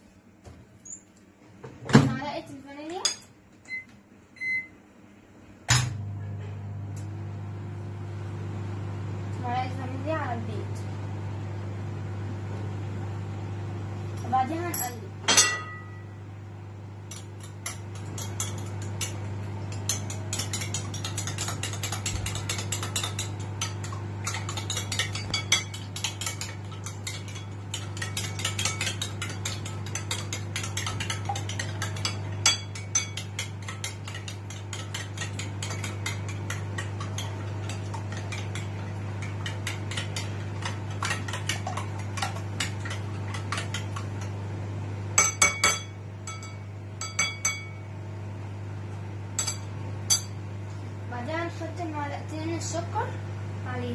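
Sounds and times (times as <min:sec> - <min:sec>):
steady low hum: 0:00.0 - 0:53.9
spoon clinking against ceramic bowl: 0:17.1 - 0:41.6, 0:45.2 - 0:47.9, 0:49.4 - 0:50.4.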